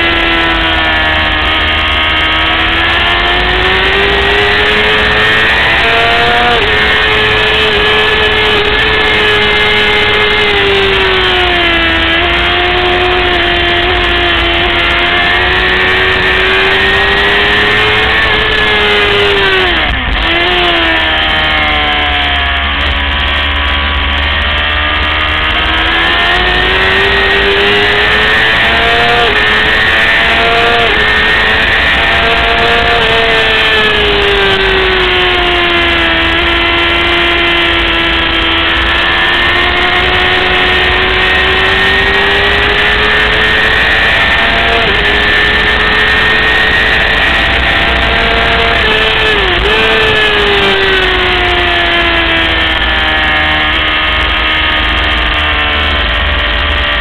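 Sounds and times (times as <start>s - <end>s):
motorcycle engine revving hard: 0.0s - 57.0s.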